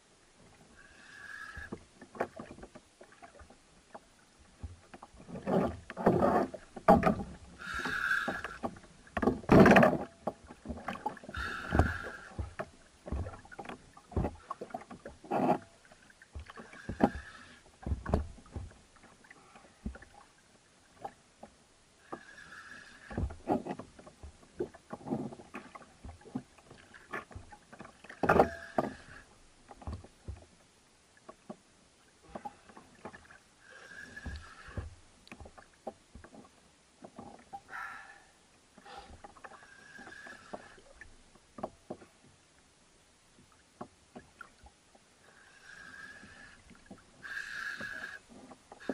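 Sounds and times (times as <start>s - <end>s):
knocks and clicks of rod and hull: 1.5s - 20.2s, 23.0s - 33.4s, 34.1s - 37.7s, 38.7s - 42.4s, 43.4s - 45.0s.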